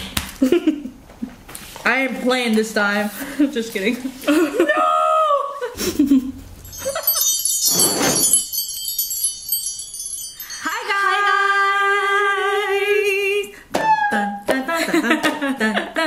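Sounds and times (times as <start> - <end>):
shimmering chimes: 6.6 - 11.7.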